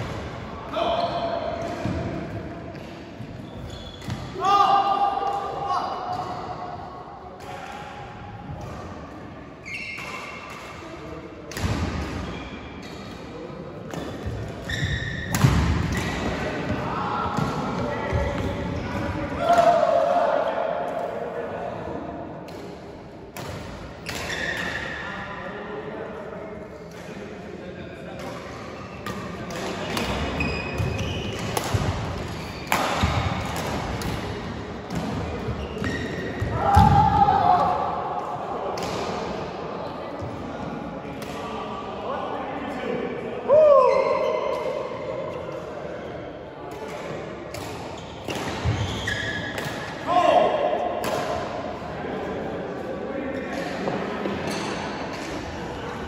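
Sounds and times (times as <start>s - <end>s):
sneaker squeaks on floor: 3.3s - 4.3s, 9.6s - 10.6s, 12.2s - 13.1s, 14.0s - 15.4s, 24.0s - 24.8s, 30.1s - 31.6s, 32.2s - 33.4s, 35.2s - 36.5s, 47.9s - 49.6s.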